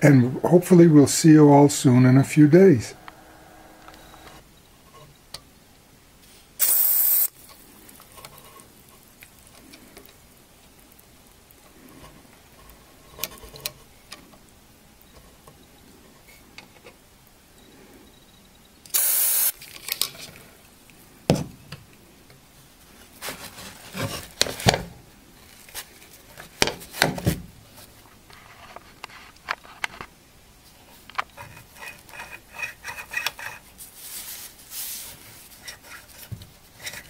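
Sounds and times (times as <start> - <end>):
aerosol hiss: 6.3 - 7.4, 18.9 - 19.6.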